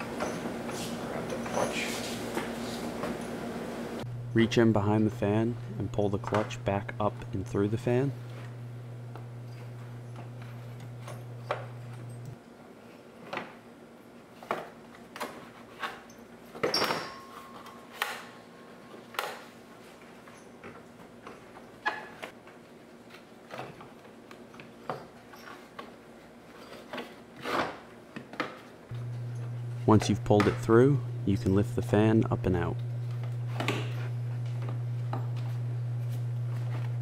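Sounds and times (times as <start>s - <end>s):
low steady hum: 1.1s - 12.4s, 28.9s - 37.0s.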